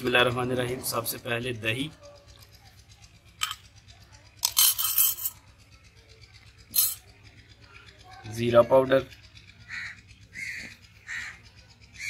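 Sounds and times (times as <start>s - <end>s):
metal spoon scraping clay bowl: 4.4s - 5.5s, 6.7s - 7.1s.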